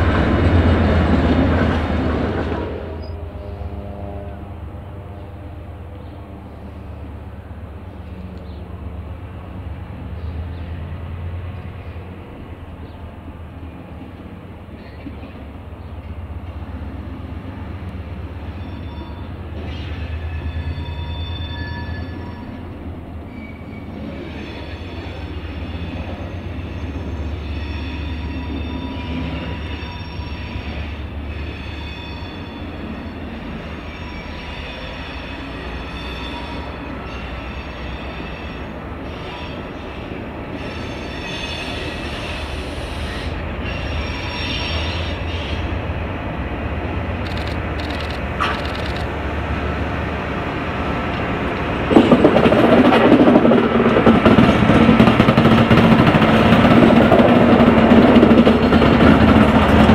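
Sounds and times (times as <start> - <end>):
diesel locomotive drone: 0.0 - 59.9
high wheel squeal: 18.4 - 45.8.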